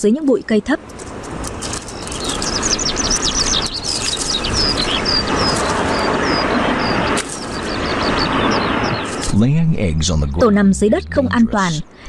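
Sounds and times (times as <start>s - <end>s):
songbird chirping: 0.0s - 12.0s
steady rushing background noise: 0.8s - 9.4s.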